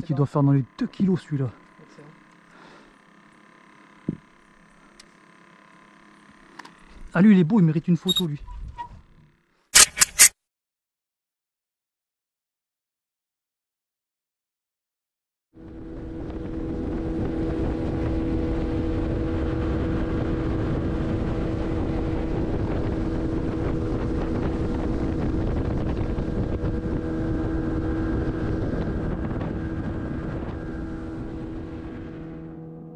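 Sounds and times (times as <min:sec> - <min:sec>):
outboard motor running: 0:00.0 - 0:09.7, 0:15.6 - 0:32.9
wind on microphone: 0:15.7 - 0:32.5.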